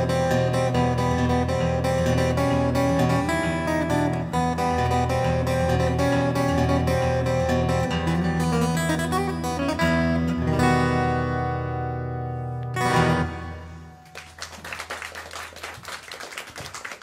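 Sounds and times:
fingerstyle acoustic guitar: 0.0 - 14.1
audience applauding: 14.0 - 17.0.

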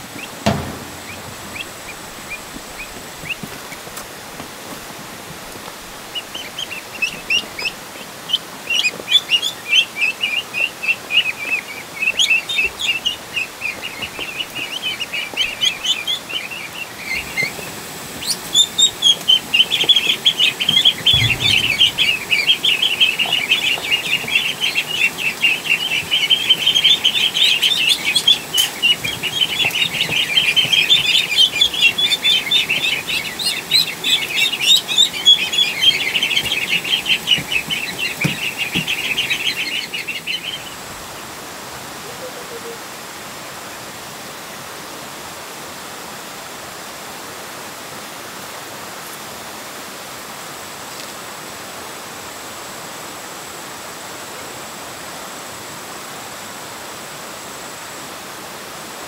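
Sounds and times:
ducklings peeping: 0.0 - 4.8, 6.0 - 42.9
low thump: 0.4 - 3.0, 21.1 - 23.4.

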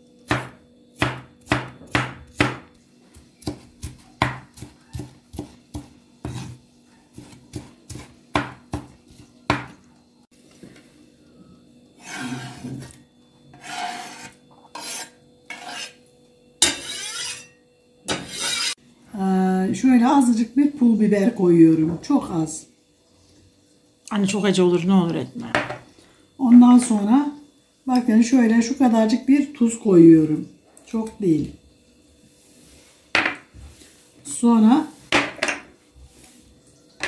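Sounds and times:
knife chopping on wooden board: 0.3 - 9.8
blade scraping across board: 12.0 - 12.9, 13.5 - 16.0, 16.6 - 17.5, 18.1 - 18.8.

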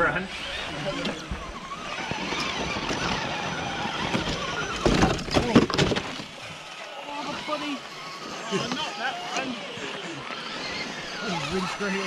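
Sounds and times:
toy truck motors running: 0.0 - 12.0
sharp knocks and scrapes: 1.0 - 6.4.

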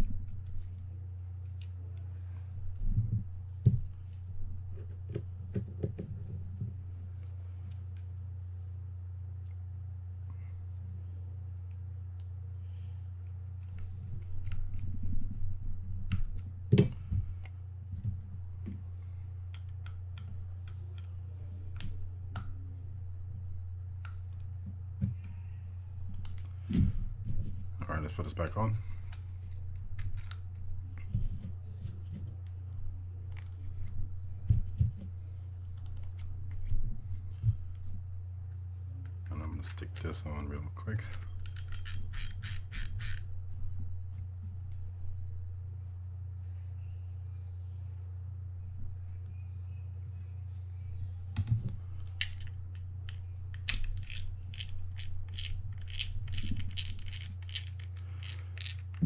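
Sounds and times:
steady low hum: 0.0 - 59.0
small clicks and taps of parts: 19.5 - 21.1
fishing reel drag clicking: 41.4 - 43.3.

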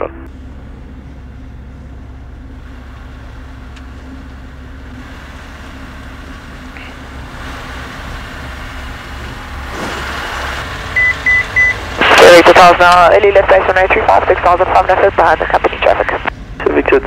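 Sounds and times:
light aircraft engine drone: 0.0 - 17.0
short high beeps: 11.0 - 11.8.

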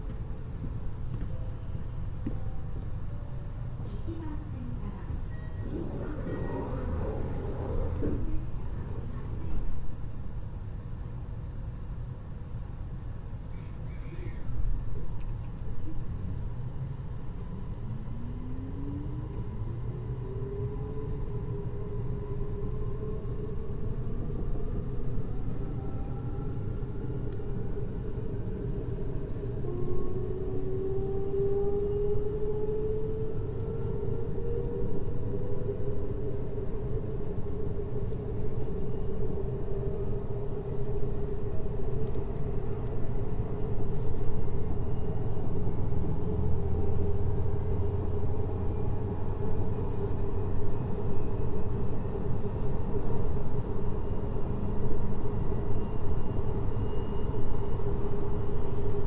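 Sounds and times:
train wheels rumbling on rail: 3.7 - 10.2.

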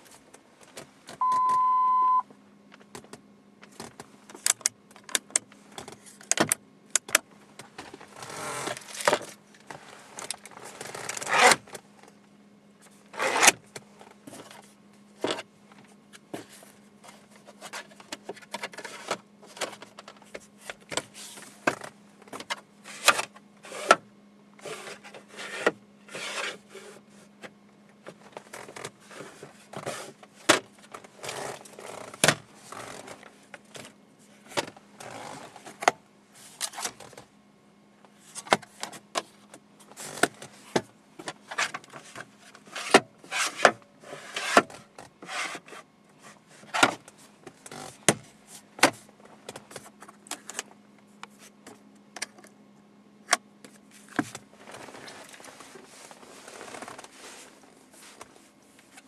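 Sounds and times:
faint steady hum: 0.0 - 59.0
steady beep: 1.2 - 2.2.

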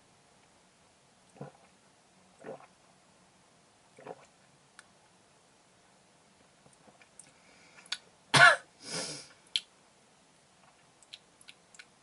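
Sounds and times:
man clearing throat: 8.4 - 8.6
mouth clicks: 9.5 - 9.7, 10.6 - 11.9.

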